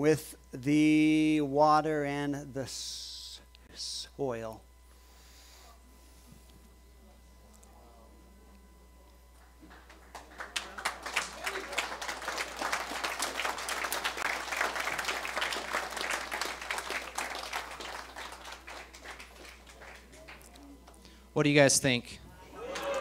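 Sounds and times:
audience applauding: 9.6 - 20.8, 22.6 - 23.0.

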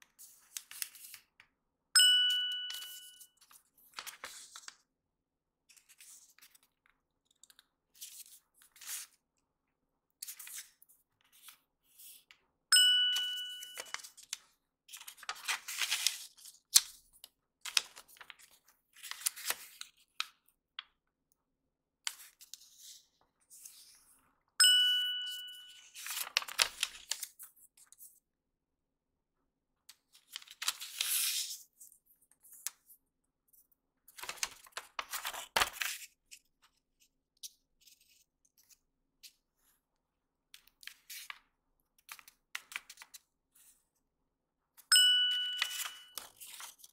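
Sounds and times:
paper rustling and crinkling: 0.1 - 1.3, 2.8 - 4.8, 5.7 - 9.2, 13.8 - 20.4, 25.9 - 28.1, 30.1 - 32.9, 34.1 - 38.8, 45.6 - 46.9
bright bell-like ding: 2.0 - 3.2, 12.8 - 14.0, 24.6 - 25.8, 44.9 - 46.2.

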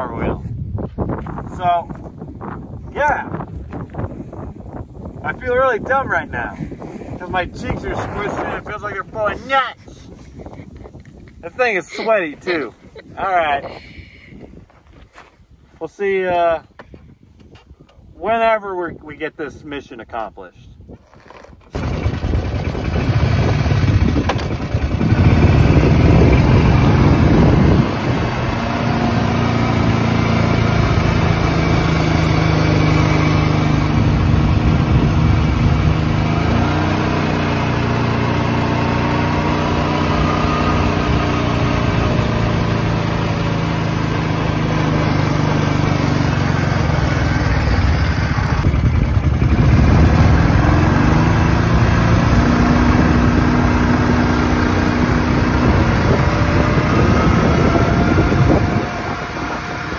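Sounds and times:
atv engine running: 21.0 - 59.9.

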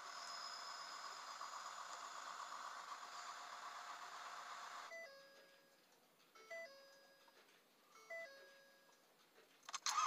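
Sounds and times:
diesel engine cranking and starting: 0.0 - 4.9, 9.7 - 10.0.

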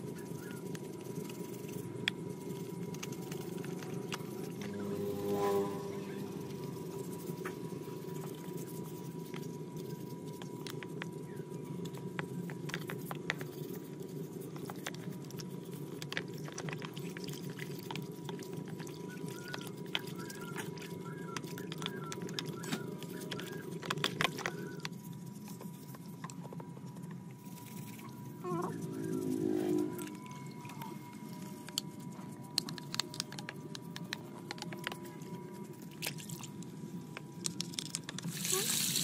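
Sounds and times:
plastic parts clicking and knocking: 32.5 - 35.0, 36.6 - 38.3.

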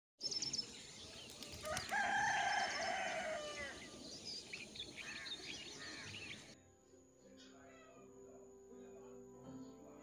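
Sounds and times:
small birds chirping: 0.2 - 6.6
rooster crowing: 1.7 - 3.8.

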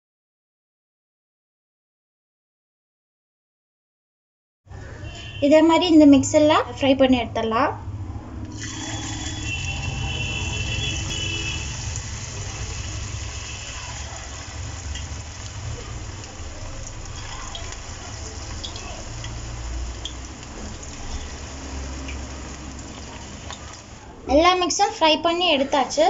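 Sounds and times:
batter deep-frying in hot oil: 8.5 - 26.0.

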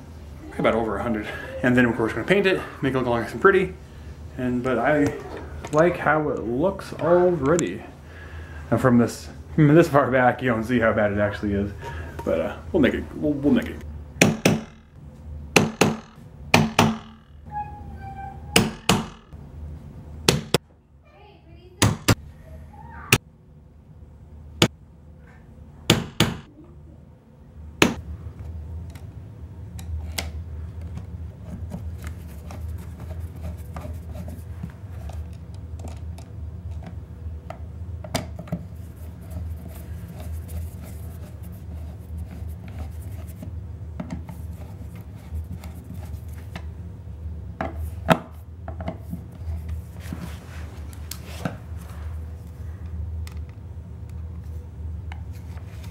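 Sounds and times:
steady low hum: 0.0 - 55.9
hammer blows nailing: 14.2 - 14.9, 15.5 - 17.5, 18.5 - 19.3
sharp knocks: 14.2 - 14.9, 15.6 - 17.3, 18.6 - 19.3, 25.9 - 26.5.

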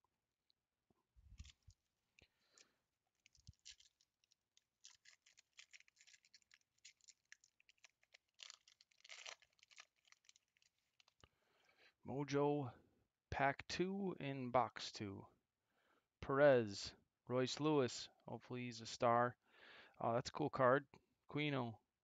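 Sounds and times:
wrapper crinkling and tearing: 1.3 - 11.2.

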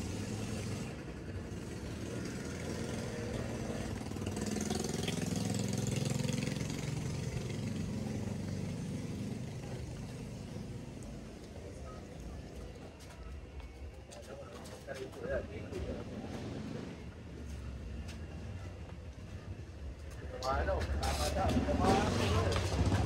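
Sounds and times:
engine running steadily: 0.0 - 12.9.

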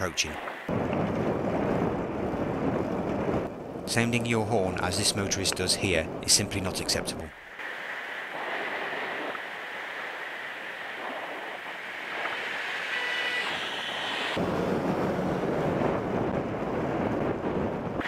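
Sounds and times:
wind rushing over microphone: 0.0 - 18.0
traffic passing close by: 12.2 - 17.0.

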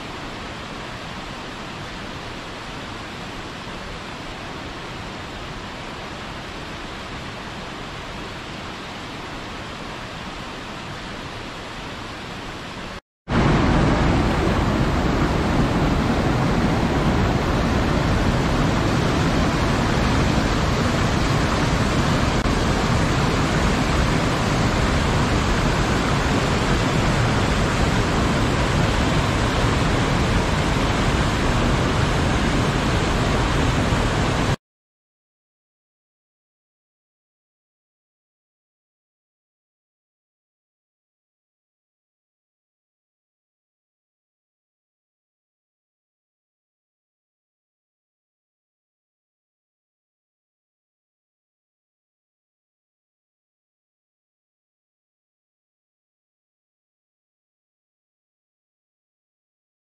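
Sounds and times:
waterfall rushing: 0.0 - 34.6.

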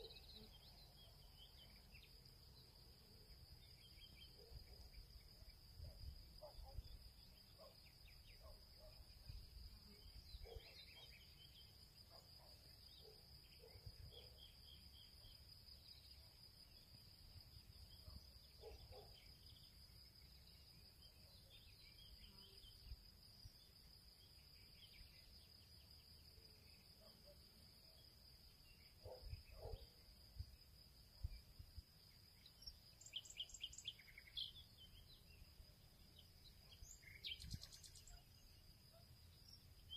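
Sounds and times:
faint chirps: 0.0 - 39.9.

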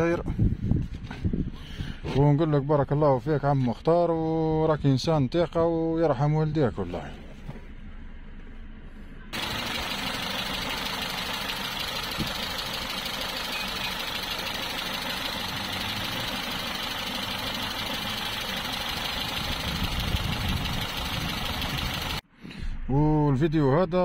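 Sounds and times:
car engine idling: 9.4 - 22.2.

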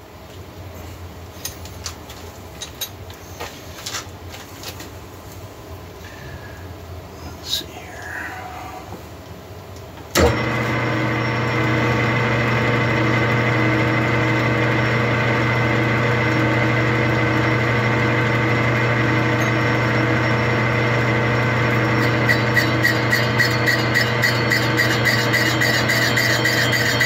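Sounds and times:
lathe motor hum and whine: 10.1 - 27.0.

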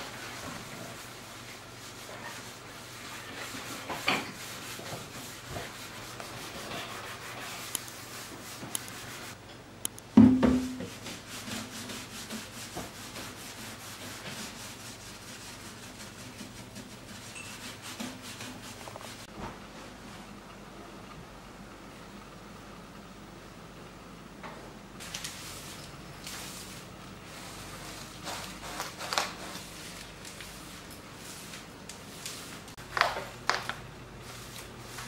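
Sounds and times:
sponge scrubbing enamel: 10.9 - 19.3.

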